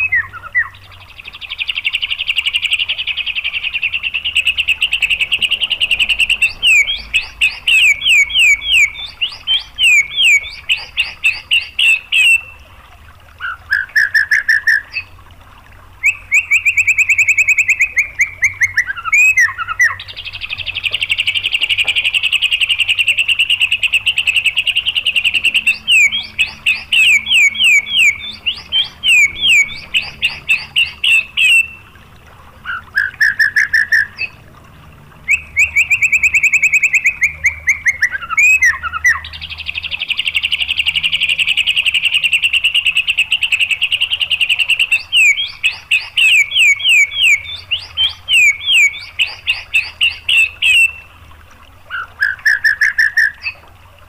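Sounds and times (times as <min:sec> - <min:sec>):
bird song with rapid trills: 0:00.0 - 0:12.8, 0:13.4 - 0:15.2, 0:16.0 - 0:32.0, 0:32.6 - 0:34.4, 0:35.2 - 0:51.2, 0:51.9 - 0:53.7
sharp down-slurred whistled notes: 0:35.3 - 0:38.8.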